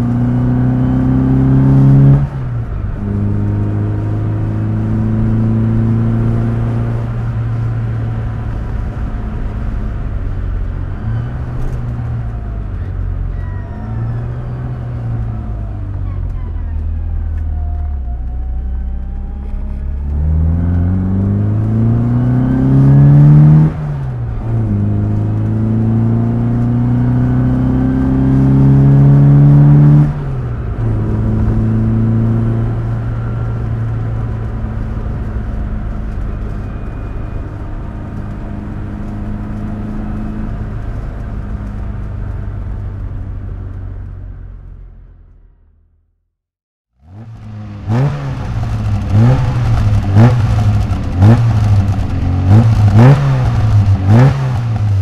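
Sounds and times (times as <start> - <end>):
car engine revving: 0.0 - 12.0, 19.0 - 36.2, 47.0 - 55.0.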